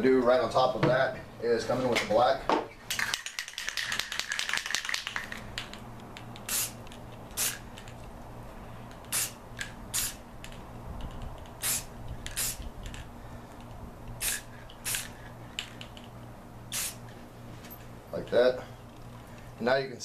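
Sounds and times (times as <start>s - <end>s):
spray paint can hissing: 2.9s - 8.0s, 9.0s - 13.1s, 14.2s - 16.1s, 16.7s - 17.2s.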